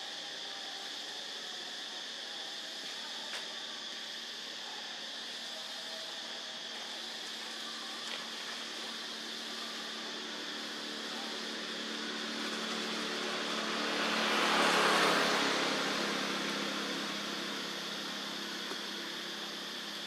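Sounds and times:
steady low hum: 4.0 - 20.0
vehicle passing by: 10.2 - 18.4.

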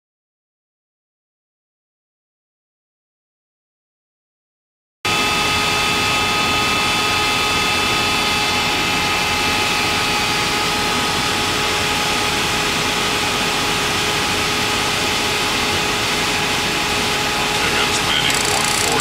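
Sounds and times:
jet engine drone: 5.1 - 19.0
high whines: 17.3 - 19.0.

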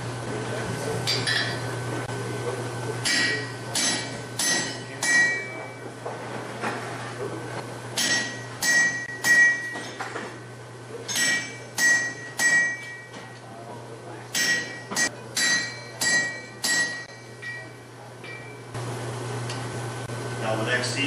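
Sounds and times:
hammer striking iron on anvil: 1.1 - 1.6, 3.0 - 5.7, 8.0 - 10.0, 11.1 - 13.2, 14.3 - 18.6.

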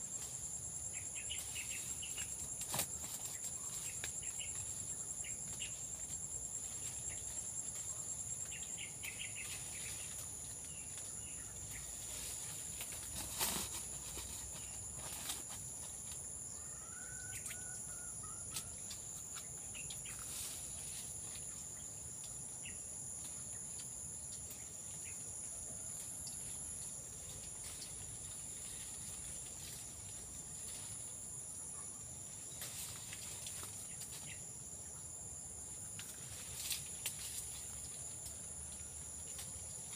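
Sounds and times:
leaves rustling: 0.0 - 16.3, 18.9 - 21.7, 26.5 - 31.5, 32.3 - 34.6, 35.8 - 39.9
high-pitched insect chorus: 0.0 - 39.9.

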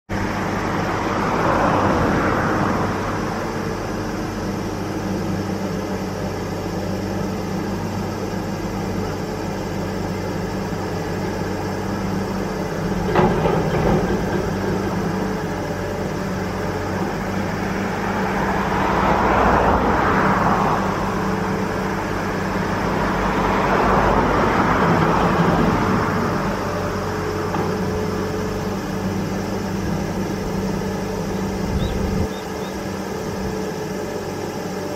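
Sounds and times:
diesel machinery droning: 0.1 - 34.9
road traffic passing: 0.1 - 34.9.

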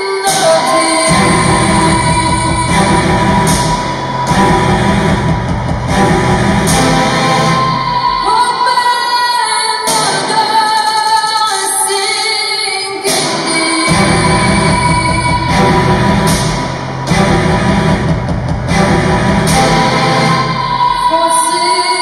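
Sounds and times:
woman singing: 0.0 - 3.9, 7.6 - 16.0, 20.5 - 22.0
loud dance music: 0.0 - 22.0.

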